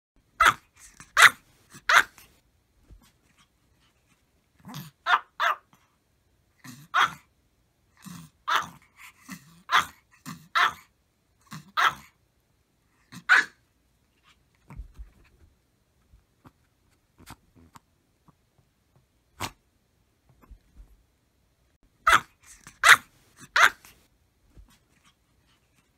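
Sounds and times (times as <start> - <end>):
small dog barking: 0.4 - 2.3, 4.7 - 5.8, 6.7 - 7.3, 8.4 - 10.9, 11.5 - 12.2, 13.1 - 13.6, 22.0 - 24.0.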